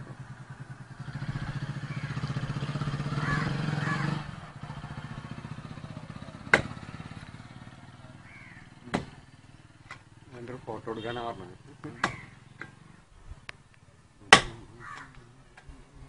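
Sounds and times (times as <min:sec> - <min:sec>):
engine running with rapid pulse: 0:00.0 - 0:09.3.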